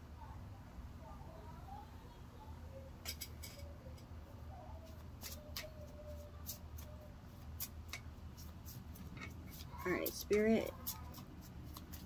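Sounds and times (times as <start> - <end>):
cards shuffling and snapping: 10.9 - 12.0.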